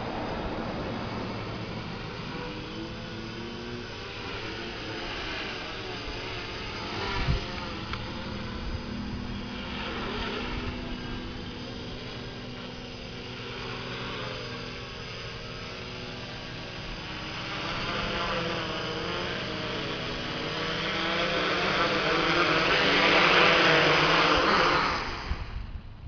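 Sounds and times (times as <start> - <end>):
drone propellers whirring: 0.0 - 26.0.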